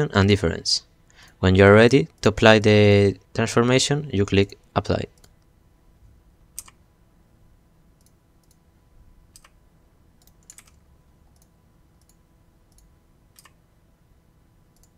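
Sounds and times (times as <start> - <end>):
computer mouse clicks: 6.6 - 6.8, 8.0 - 8.6, 9.3 - 9.6, 10.2 - 13.6
keyboard key presses: 10.2 - 10.8.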